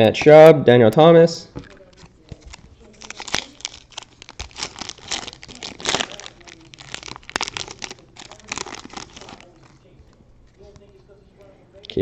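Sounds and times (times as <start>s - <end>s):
foil wrapper crinkling: 1.6s - 10.9s.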